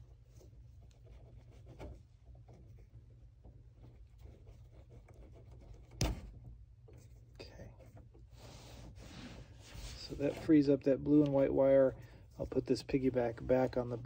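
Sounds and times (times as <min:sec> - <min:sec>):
steady low hum: 0:00.0 - 0:14.0
connector scratching and clicking: 0:00.4 - 0:08.3.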